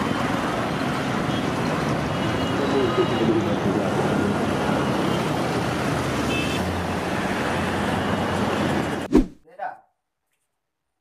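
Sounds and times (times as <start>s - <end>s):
city traffic hum: 0.0s - 9.4s.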